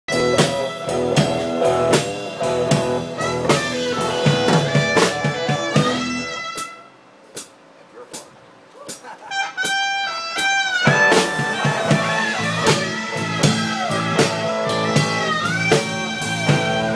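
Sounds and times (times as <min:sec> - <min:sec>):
drum hits: 0:00.1 - 0:09.8, 0:10.4 - 0:16.9
blues band playing: 0:00.1 - 0:16.9.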